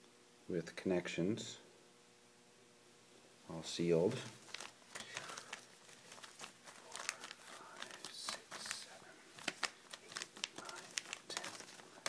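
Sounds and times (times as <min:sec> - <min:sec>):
plastic bags crinkling: 0:04.3 - 0:12.0.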